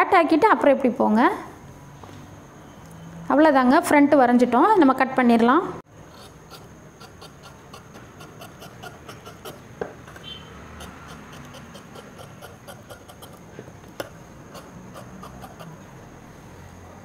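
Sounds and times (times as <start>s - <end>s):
shears cutting cloth: 6.1s - 15.8s.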